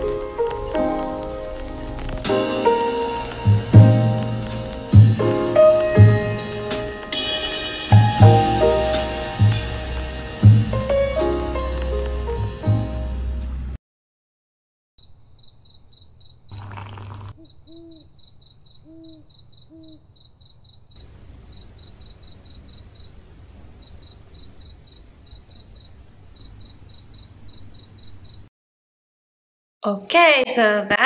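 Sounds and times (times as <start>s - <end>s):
crickets chirping: 15.0s - 28.5s.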